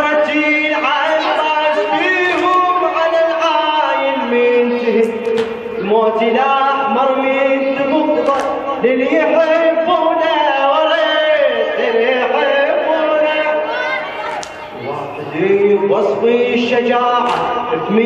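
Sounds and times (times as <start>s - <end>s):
man chanting into a microphone: 0.0s - 13.7s, 14.9s - 18.0s
sharp knock: 5.3s - 5.7s, 17.2s - 17.6s.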